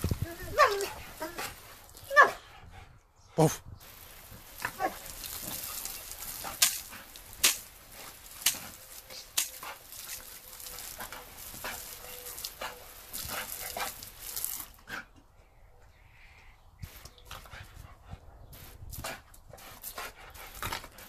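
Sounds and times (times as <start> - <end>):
garden hose spray hissing: 0.0 - 2.4, 3.8 - 15.0.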